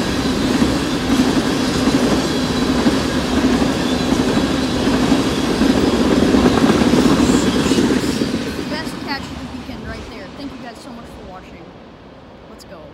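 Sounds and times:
freight train wheels rumbling: 0.0s - 12.9s.

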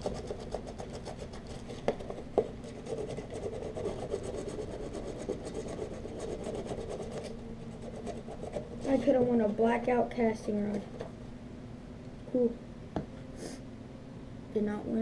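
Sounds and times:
scratch card being scraped: 0.0s - 8.9s.

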